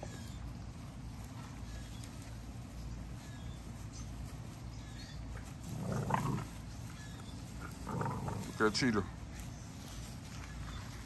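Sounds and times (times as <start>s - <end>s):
low outdoor background: 0.0s - 11.0s
animal vocalisation: 5.6s - 6.8s, 7.5s - 8.9s.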